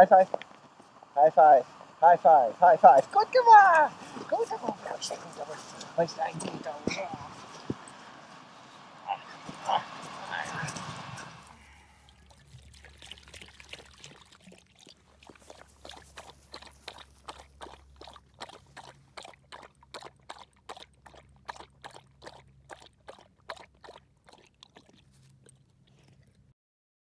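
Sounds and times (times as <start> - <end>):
dog lapping water: 10.8 - 26.5
water pouring into plastic bowl: 11.6 - 25.2.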